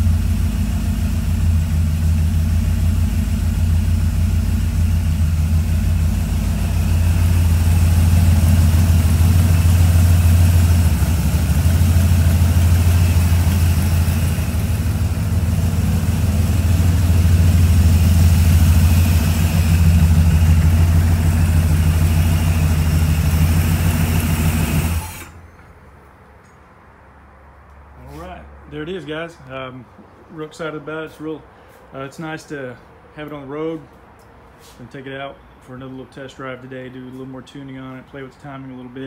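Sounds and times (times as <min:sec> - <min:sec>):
car engine idling: 0:00.0 - 0:25.4.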